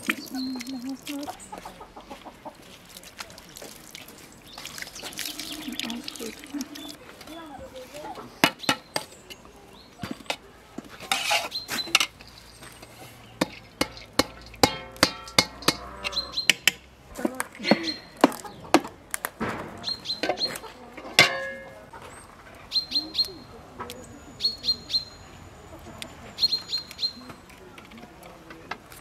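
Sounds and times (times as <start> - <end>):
metal utensils striking a pot: 12.8 - 16.8, 20.2 - 21.9.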